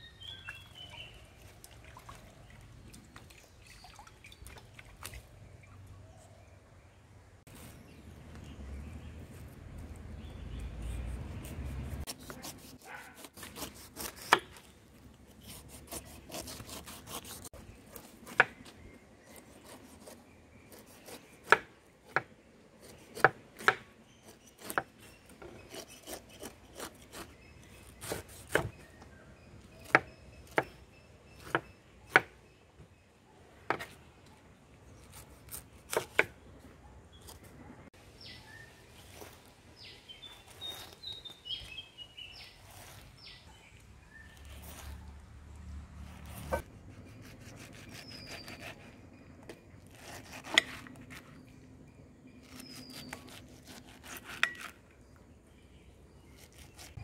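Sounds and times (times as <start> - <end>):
knife scraping pineapple skin: 10.2 - 21.6, 22.8 - 29.0, 34.9 - 36.4, 38.2 - 43.5, 44.1 - 45.2, 46.0 - 51.4, 52.4 - 54.9, 56.3 - 57.0.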